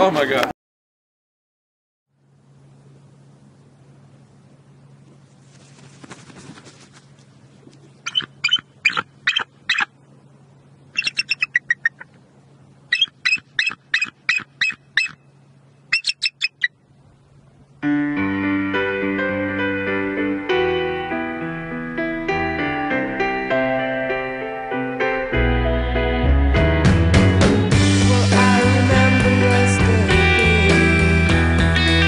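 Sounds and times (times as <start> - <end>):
faint steady hum: 2.1 - 32.0
eagle high-pitched piping calls: 8.0 - 9.9, 10.9 - 12.1, 12.9 - 15.3, 15.9 - 16.8
piano music: 17.8 - 32.0.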